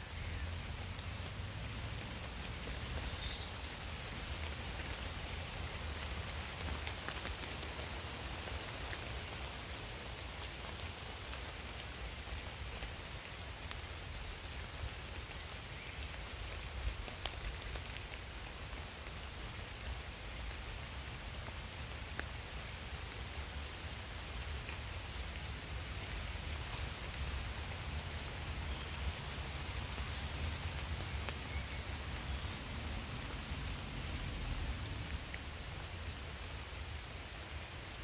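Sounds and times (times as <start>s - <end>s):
rain on leaves and grass: 0.0s - 38.0s
raindrop ticks: 13.6s - 13.9s, 21.5s - 22.3s.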